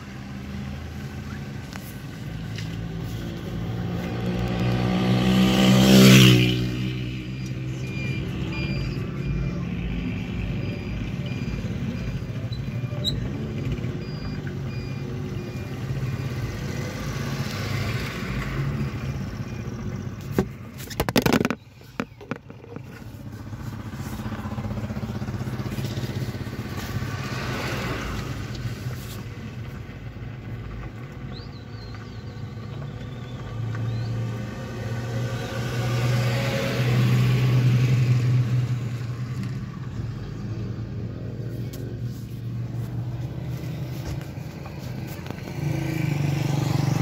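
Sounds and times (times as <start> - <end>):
car engine and road noise: 0.0 - 47.0
passing traffic: 0.0 - 47.0
knocks and rubbing on camera: 20.3 - 23.4.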